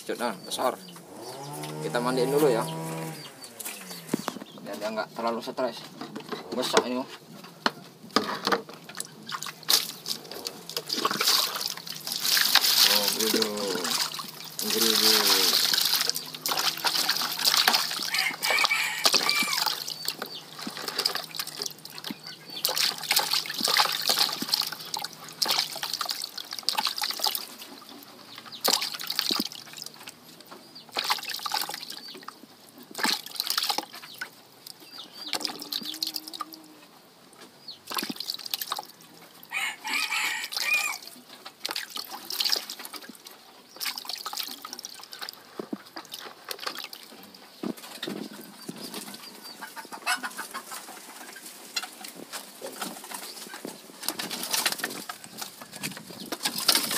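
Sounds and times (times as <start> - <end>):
water splashing in a basin: 8.3 - 36.7, 37.8 - 49.3, 51.6 - 56.9.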